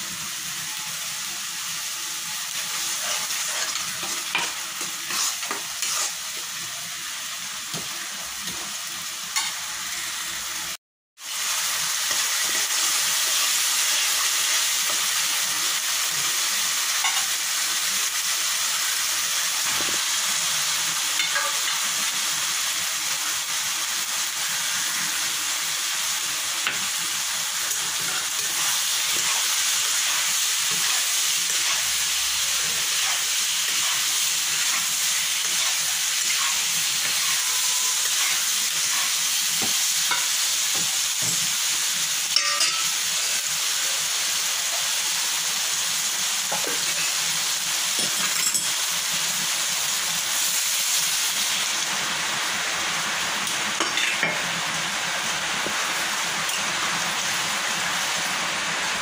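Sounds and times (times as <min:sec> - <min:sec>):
food sizzling in oil: 0:00.0 - 0:59.0
spatula scraping a pan: 0:02.6 - 0:06.4, 0:27.6 - 0:41.3.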